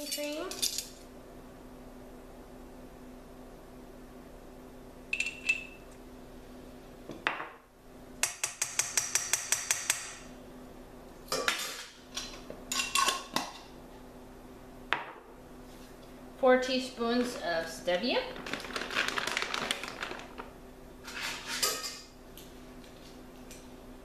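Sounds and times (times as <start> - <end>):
spoon tapping bowl: 8.2 - 10.1.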